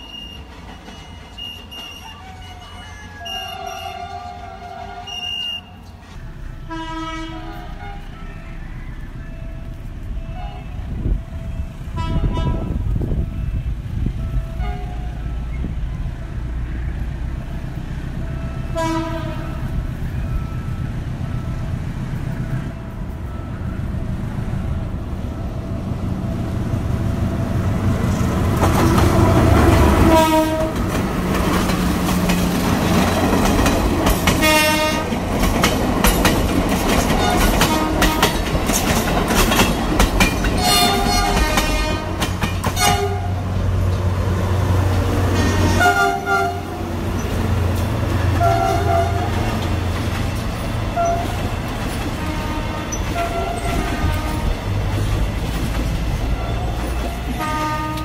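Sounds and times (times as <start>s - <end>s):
locomotive chime horn: 0.0s - 17.1s, 18.0s - 24.0s, 29.0s - 31.0s, 34.2s - 35.2s, 37.0s - 38.8s, 40.4s - 43.5s, 45.0s - 49.8s, 50.7s - 54.9s, 56.3s - 58.0s
diesel locomotive engine rumbling: 0.0s - 58.0s
wheels clicking over rail joints: 28.4s - 44.2s, 44.8s - 58.0s.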